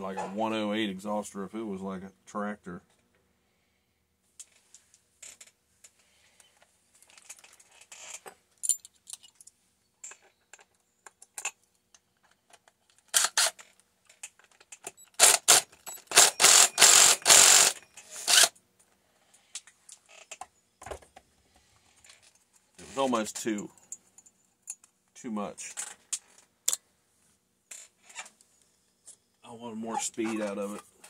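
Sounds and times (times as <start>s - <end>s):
metal parts clicking and scraping: 7.0s - 11.6s
loud rasping bursts: 15.2s - 18.6s.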